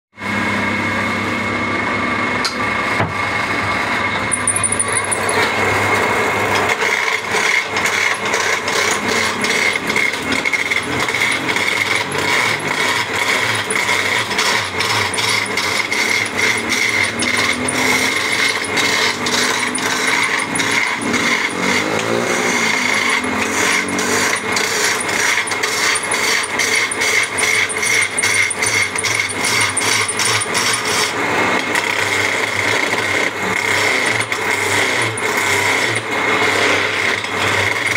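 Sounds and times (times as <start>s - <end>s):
wood lathe whining: 0.3s - 37.9s
gouge chattering on turning wood: 7.3s - 31.1s.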